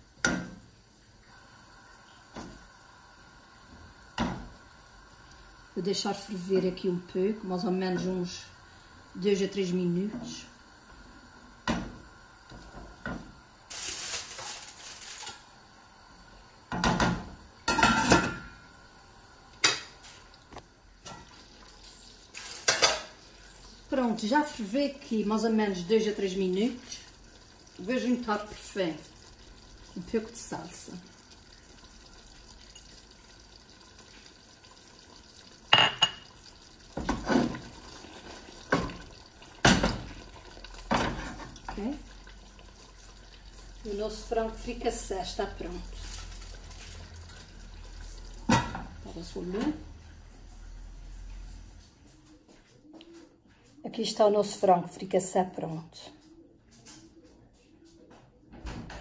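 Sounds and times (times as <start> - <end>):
wooden spoon stirring in pot: 19.6 - 50.5.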